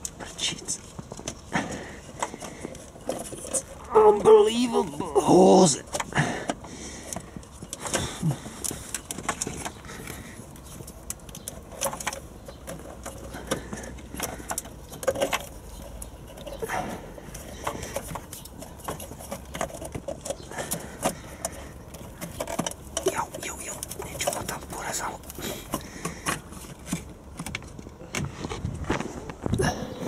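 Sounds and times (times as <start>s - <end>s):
hand clicking on plastic parts: 5.8s - 29.6s.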